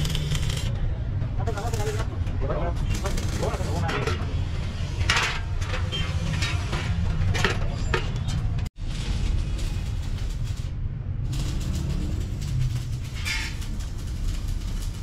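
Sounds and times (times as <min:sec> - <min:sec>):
steel knocks and clanks: 0:05.0 - 0:08.7.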